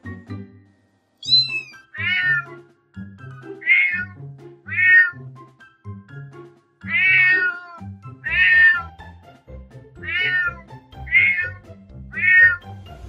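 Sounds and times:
background music: 0.0 - 13.0
kitten meowing: 1.2 - 2.5, 3.6 - 5.2, 6.9 - 8.9, 10.0 - 11.6, 12.2 - 12.6.

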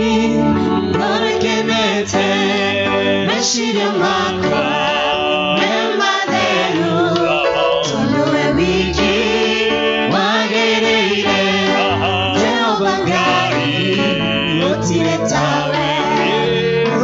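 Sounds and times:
voices singing gospel song: 0.0 - 17.0
electric bass guitar: 11.5 - 17.0.

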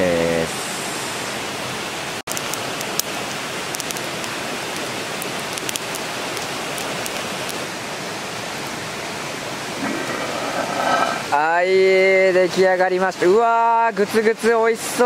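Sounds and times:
campfire crackling and popping: 2.3 - 7.7.

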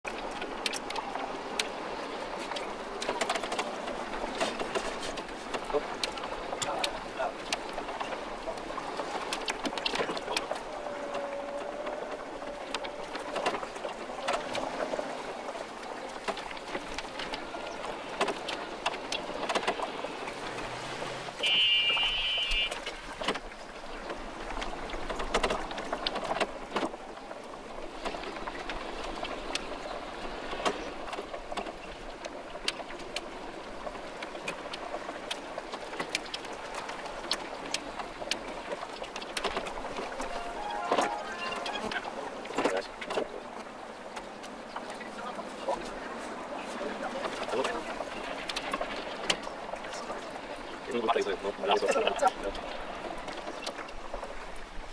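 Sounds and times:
rapid clicks and ticks: 0.1 - 20.7
high chirping tone: 40.2 - 42.1.

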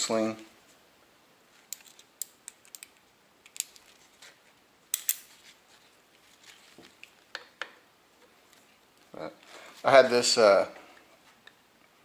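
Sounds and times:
metal sling clips clicking: 1.7 - 3.9, 4.9 - 5.3.

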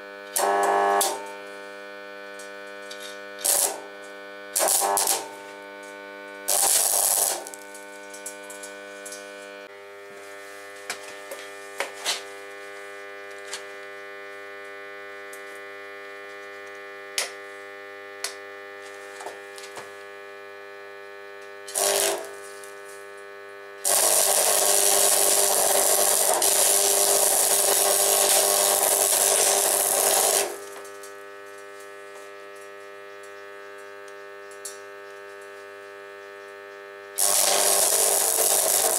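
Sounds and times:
welding arc crackling: 0.0 - 9.7, 21.7 - 36.2, 37.2 - 38.9
welder transformer humming: 0.0 - 38.9.

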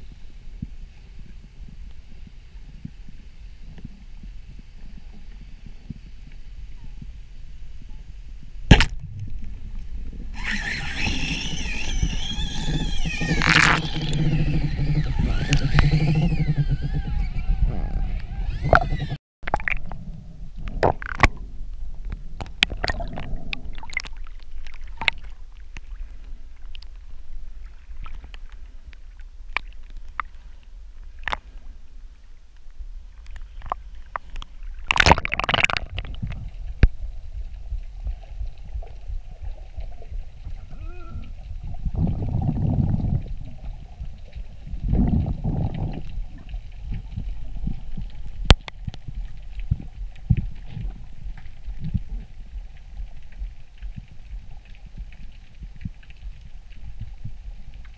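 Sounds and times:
low rumble of moving water: 0.0 - 57.9
water sloshing and gurgling: 0.6 - 57.9
water splash: 8.7 - 9.8, 18.2 - 20.0, 22.4 - 26.0, 33.6 - 37.0.

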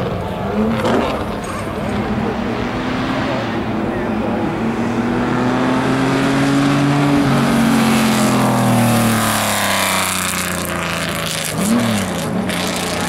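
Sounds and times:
race car engine accelerating: 0.0 - 13.0.

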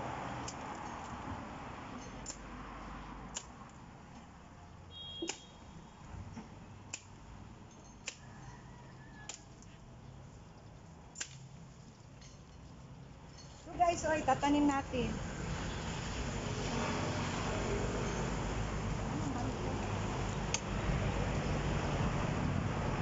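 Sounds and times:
machete chopping branches: 3.3 - 3.8, 5.2 - 5.6, 6.4 - 7.2, 8.0 - 8.3, 11.1 - 11.6.

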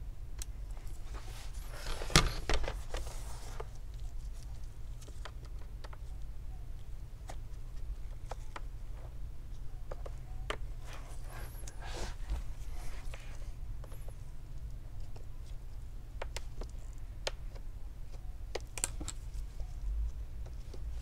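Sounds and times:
steady low hum: 0.0 - 21.0
small clicks and taps: 4.4 - 8.7, 16.2 - 21.0.

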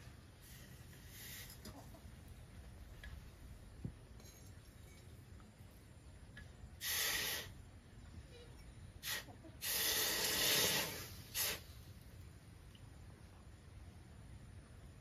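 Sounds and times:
hot metal hissing in water: 6.8 - 7.6, 9.0 - 11.8.

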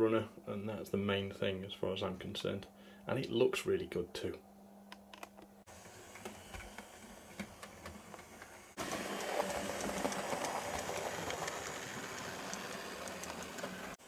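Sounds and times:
small electric motor whirring: 5.7 - 14.0
wheels clicking on rails: 5.8 - 14.0.

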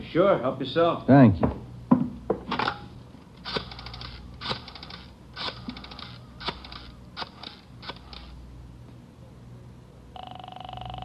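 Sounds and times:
rotary telephone dial clicking: 3.4 - 8.3.

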